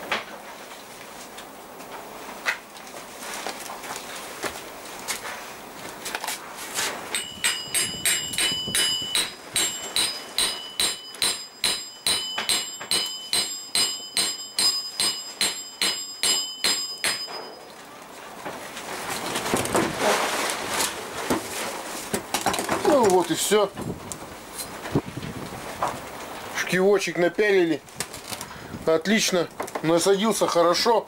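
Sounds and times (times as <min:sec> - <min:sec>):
rustling handling noise: 0:00.4 - 0:11.2, 0:17.3 - 0:31.0
hammer blows on metal bar: 0:07.1 - 0:17.6.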